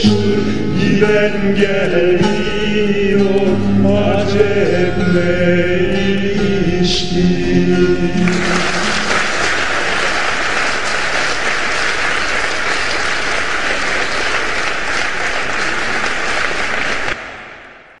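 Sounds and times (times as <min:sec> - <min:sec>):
large audience applauding: 0:08.2 - 0:17.9.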